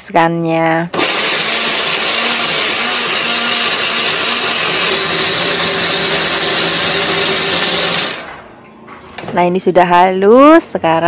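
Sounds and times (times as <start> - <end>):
blender motor grinding: 0.9 - 8.4.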